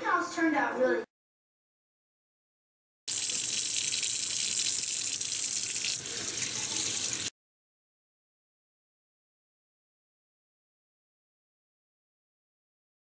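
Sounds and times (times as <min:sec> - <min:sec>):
tap water running into metal sink: 0:03.1 - 0:07.3.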